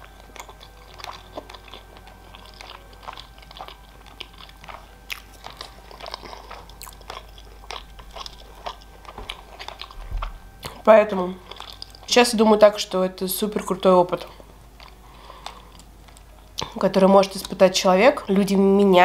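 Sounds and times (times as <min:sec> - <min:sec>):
wet chewing clicks and smacks: 0:00.0 - 0:10.8, 0:11.4 - 0:12.1, 0:14.1 - 0:16.8.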